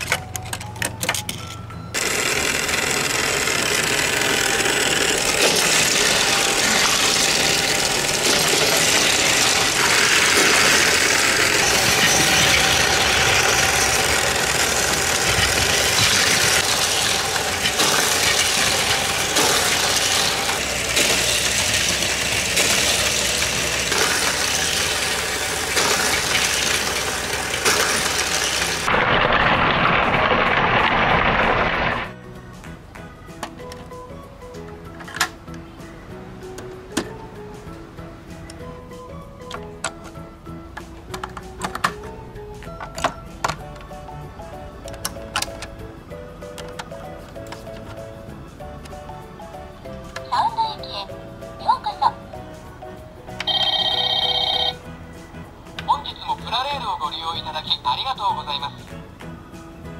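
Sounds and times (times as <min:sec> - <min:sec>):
toy cars rattling on plastic track: 0:00.0 - 0:32.1, 0:53.4 - 0:54.8
toy train motor: 0:01.3 - 0:28.9, 0:53.4 - 0:54.8.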